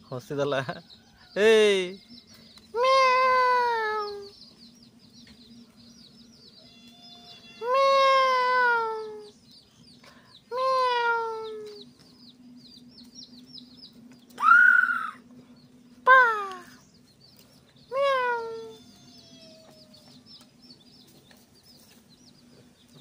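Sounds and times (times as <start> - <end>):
faint high bird chirping: 0.0 - 23.0
animal calling: 17.9 - 20.4.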